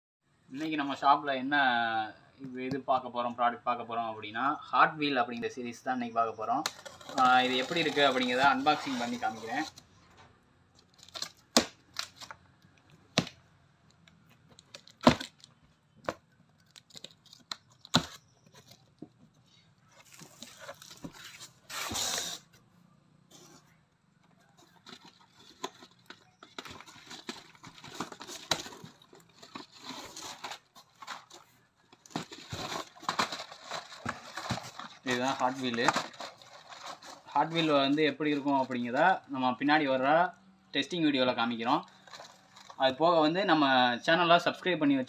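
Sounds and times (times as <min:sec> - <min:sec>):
tape and cardboard tearing: 0:06.6 - 0:09.8, 0:10.8 - 0:12.4, 0:14.5 - 0:18.8, 0:20.0 - 0:22.6, 0:24.9 - 0:37.7
cardboard boxes rustling and sliding: 0:20.0 - 0:22.5, 0:26.6 - 0:37.7.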